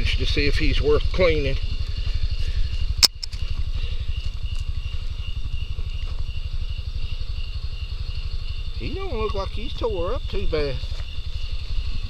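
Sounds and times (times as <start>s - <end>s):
small engine idling: 0.0s - 12.0s
sharp click: 3.0s - 3.4s.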